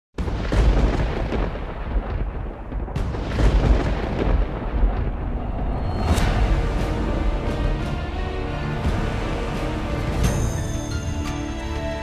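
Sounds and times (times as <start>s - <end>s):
deep continuous rumble: 2.0s - 10.2s.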